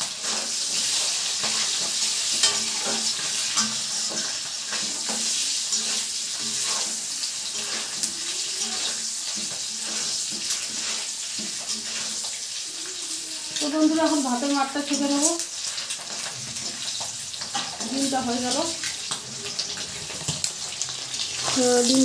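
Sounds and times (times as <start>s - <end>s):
metal spatula scraping pan: 0.0s - 15.0s
eggs sizzling in hot oil: 0.0s - 22.0s.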